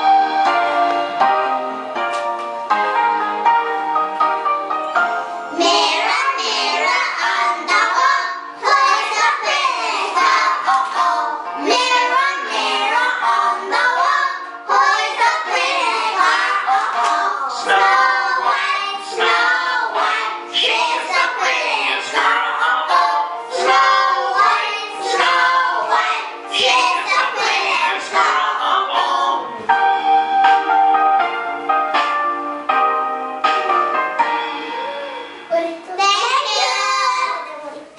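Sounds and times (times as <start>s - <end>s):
music backing track: 0.0s - 37.9s
children singing: 5.5s - 29.6s, 36.3s - 37.5s
bell-like instrumental notes: 29.8s - 35.8s.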